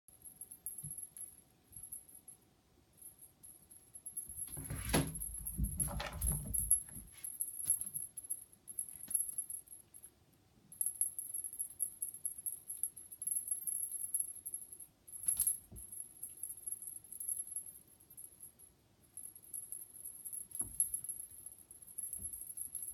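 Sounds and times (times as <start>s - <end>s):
cat toy fluttering rustle and jingle: 4.0s - 8.2s
soft bumps and knocks: 4.4s - 7.2s.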